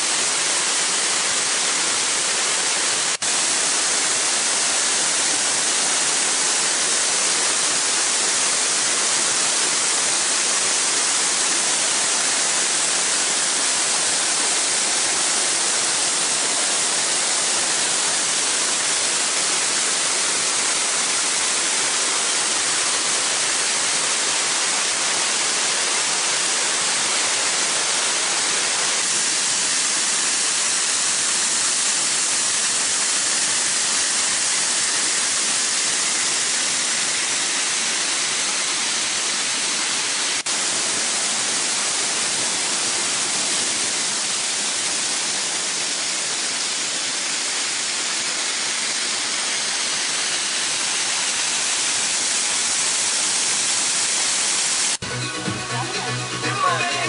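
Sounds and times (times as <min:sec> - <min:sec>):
waterfall rushing: 0:00.0 - 0:57.0.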